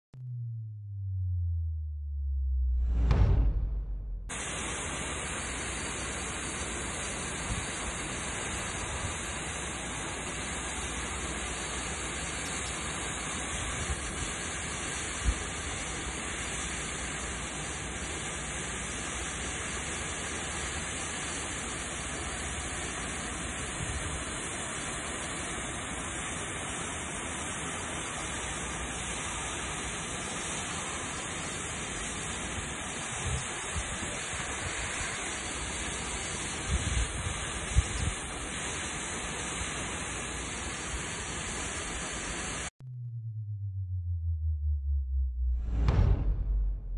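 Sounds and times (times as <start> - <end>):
brief knock: 2.9 - 4.3
water gushing from leaking pipe: 4.3 - 42.6.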